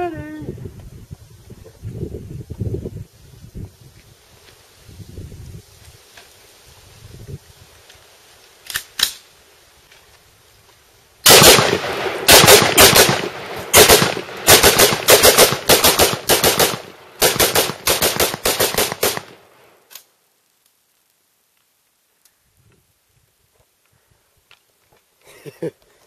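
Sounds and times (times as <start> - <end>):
rifle firing rapid shots: 11.3 - 19.4
faint clicks: 19.9 - 22.8.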